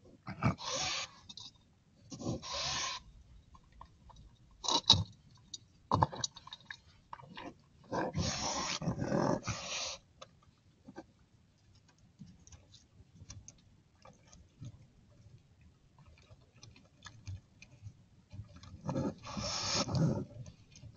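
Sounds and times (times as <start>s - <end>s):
raccoons hissing and growling: 0.3s - 1.2s, 2.4s - 3.0s, 7.9s - 10.0s, 18.9s - 20.3s.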